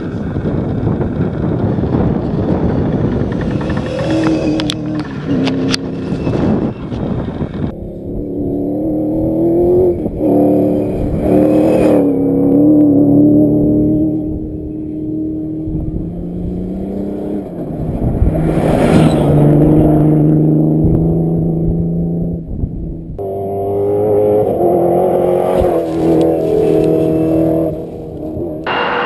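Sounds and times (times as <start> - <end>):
engine running at higher pitch: 0.0 - 21.8, 23.2 - 29.0
rally car engines passing: 0.0 - 29.0
rush of noise: 1.3 - 8.2, 28.6 - 29.0.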